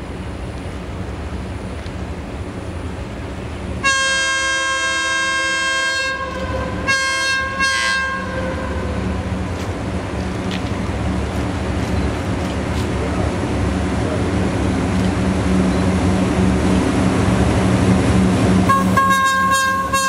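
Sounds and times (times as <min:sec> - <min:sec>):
locomotive low rumble: 0:00.0 - 0:20.0
locomotive air horn blasts: 0:03.8 - 0:09.1, 0:18.7 - 0:20.0.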